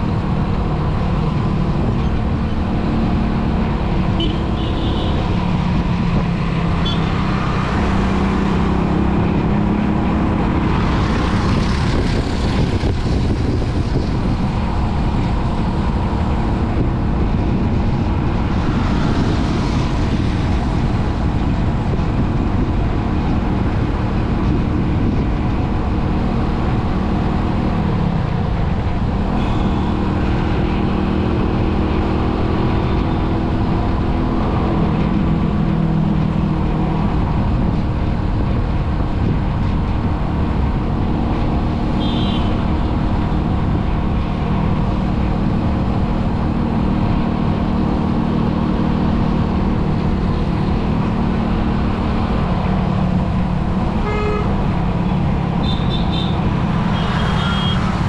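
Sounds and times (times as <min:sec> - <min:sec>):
engine hum: 0:00.0 - 0:58.0
road noise from moving vehicle: 0:00.0 - 0:58.0.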